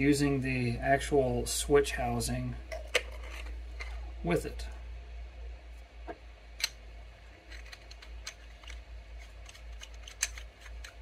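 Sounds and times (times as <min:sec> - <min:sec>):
metallic clicks of parts handled: 0:06.6 - 0:11.0.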